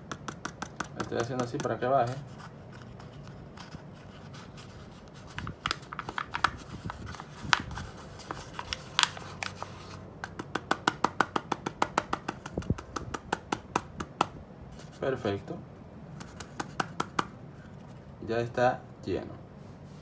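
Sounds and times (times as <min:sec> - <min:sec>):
fingers tapping paper: 0:00.0 - 0:03.9, 0:05.1 - 0:14.4, 0:16.2 - 0:17.3
paper rustling: 0:01.1 - 0:10.0.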